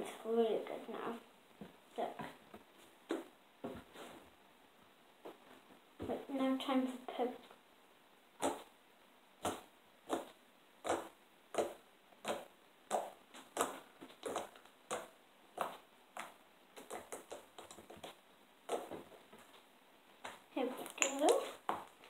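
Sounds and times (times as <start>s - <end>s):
slime popping: 20.2s - 22.0s.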